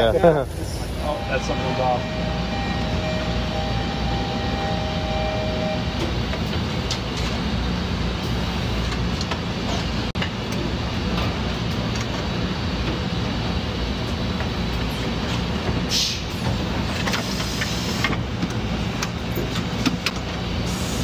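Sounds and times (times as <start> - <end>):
machine humming: 0.3 - 11.5.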